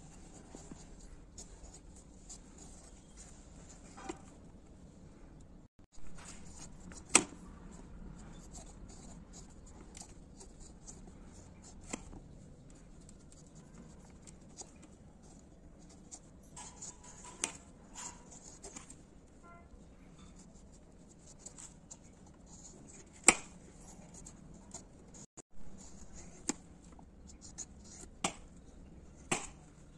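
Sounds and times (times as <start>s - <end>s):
knife scraping fruit skin: 13.5s - 19.0s.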